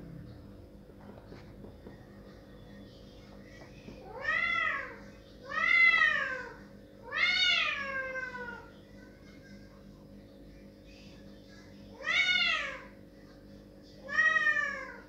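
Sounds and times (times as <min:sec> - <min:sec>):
cat meowing loudly: 0:07.1 - 0:08.6, 0:12.0 - 0:12.9.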